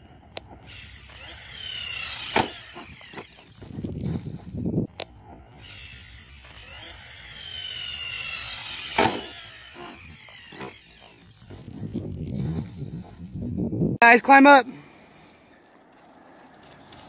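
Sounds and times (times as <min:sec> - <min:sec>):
electric motor whining: 0:00.0 - 0:14.0
toy truck hitting dirt: 0:00.4 - 0:12.2.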